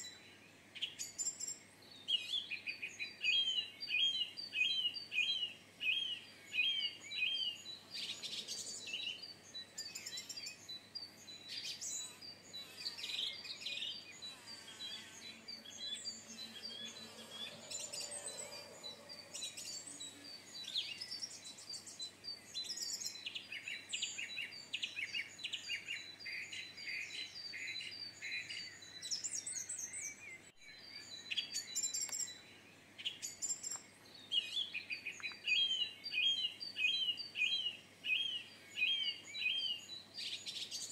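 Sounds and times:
songbirds singing: 0:00.0 - 0:40.9.

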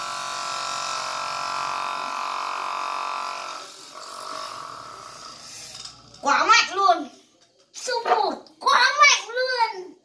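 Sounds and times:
small electric motor whining: 0:00.0 - 0:05.8.

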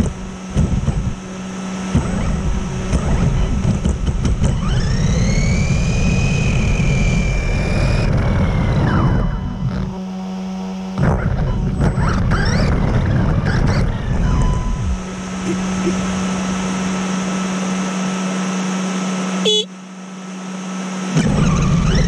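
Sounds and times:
tyres on grass and tarmac: 0:00.0 - 0:05.8
electric motor whining: 0:00.0 - 0:22.0.

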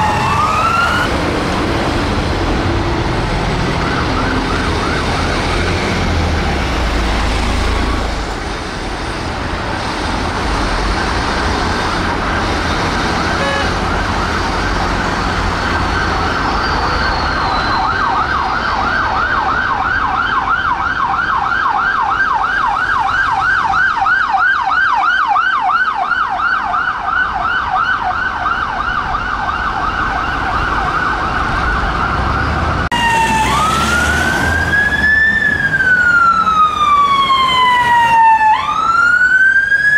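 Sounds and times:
siren fast yelp: 0:00.0 - 0:01.1, 0:15.5 - 0:39.9
police siren rising wail: 0:00.0 - 0:08.9, 0:09.6 - 0:39.9
traffic noise: 0:00.0 - 0:39.9.

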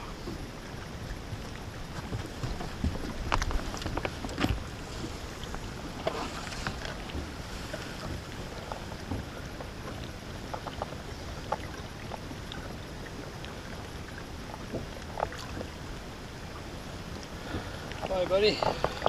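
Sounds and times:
water lapping against boat: 0:00.0 - 0:19.0.

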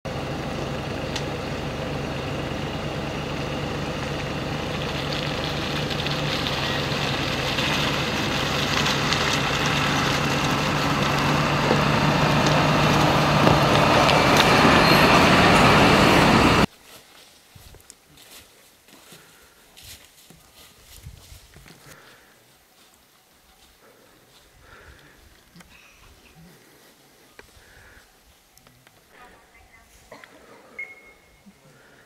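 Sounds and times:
fire engine diesel engine: 0:00.0 - 0:16.7.

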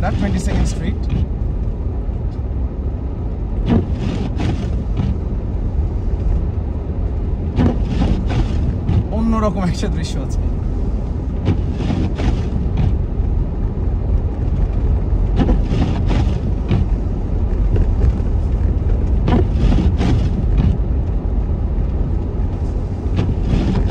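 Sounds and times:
car engine and tyres rumbling: 0:00.0 - 0:23.9.

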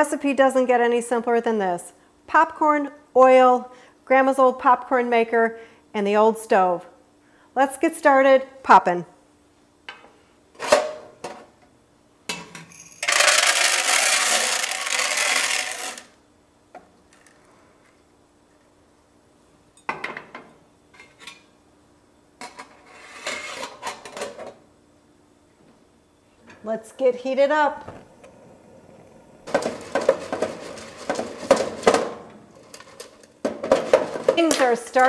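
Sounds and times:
popcorn kernels poured into metal pot: 0:12.9 - 0:16.2.

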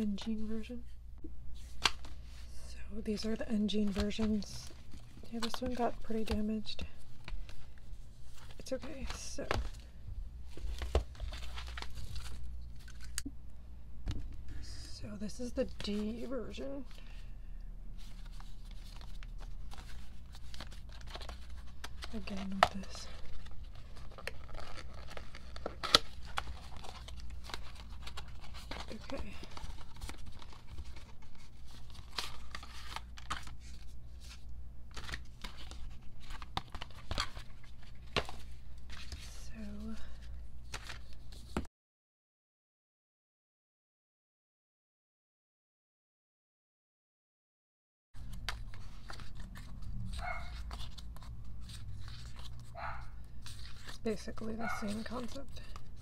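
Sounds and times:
paper rustling and crinkling: 0:01.6 - 0:02.5, 0:03.1 - 0:13.2, 0:18.0 - 0:41.7, 0:48.2 - 0:56.0
dog barking: 0:50.2 - 0:50.6, 0:52.8 - 0:53.2, 0:54.6 - 0:55.0.

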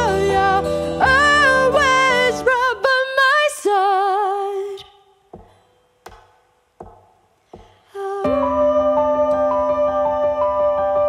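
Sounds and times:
acoustic guitar and band: 0:00.0 - 0:03.0
woman singing with vibrato: 0:00.0 - 0:05.3, 0:07.9 - 0:11.0
soft taps: 0:05.3 - 0:07.8.

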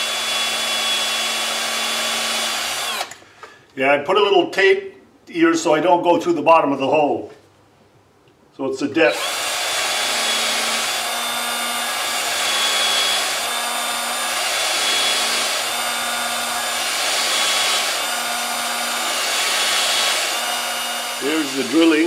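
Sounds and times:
electric drill boring into wood: 0:00.0 - 0:03.2, 0:09.1 - 0:22.0.

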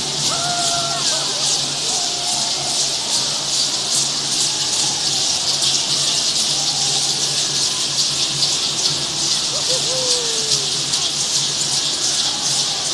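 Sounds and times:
rattles shaken together: 0:00.0 - 0:12.9.

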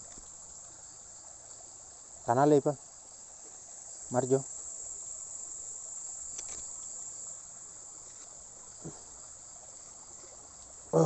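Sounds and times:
faint ticks: 0:00.0 - 0:01.7, 0:06.0 - 0:07.3, 0:08.0 - 0:10.8
crickets chirping: 0:00.0 - 0:11.0.

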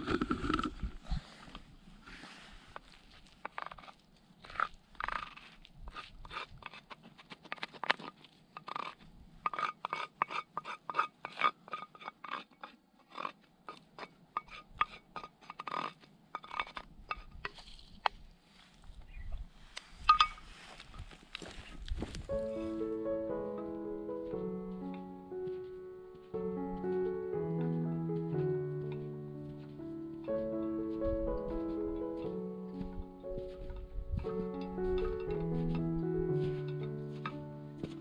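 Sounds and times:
spatula scraping a frying pan: 0:08.6 - 0:16.8.

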